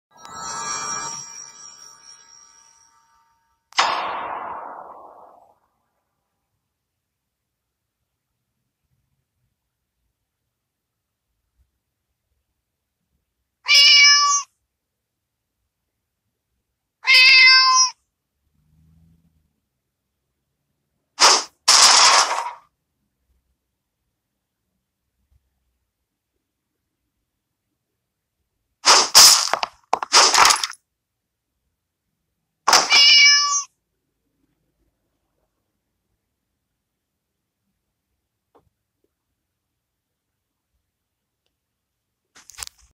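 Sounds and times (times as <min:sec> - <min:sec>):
cat meowing: 0:13.6 - 0:14.5, 0:17.0 - 0:18.0, 0:32.7 - 0:33.8.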